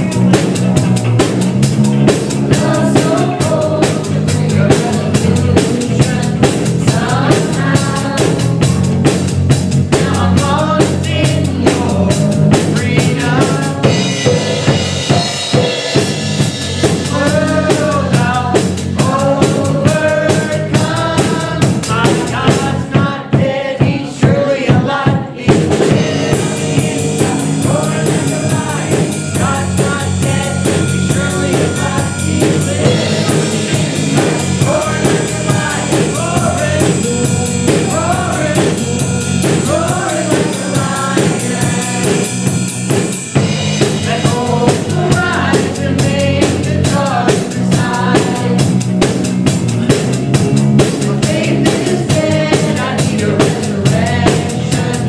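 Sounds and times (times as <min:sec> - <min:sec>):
band playing upbeat rock song: 0:00.0 - 0:55.0
voices singing: 0:00.0 - 0:55.0.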